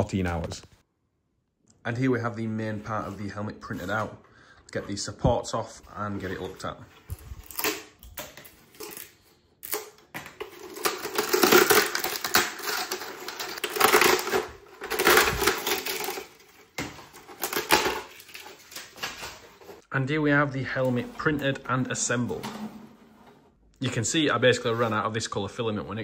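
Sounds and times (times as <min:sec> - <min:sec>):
plastic crackling and snapping: 0:07.1 - 0:19.4.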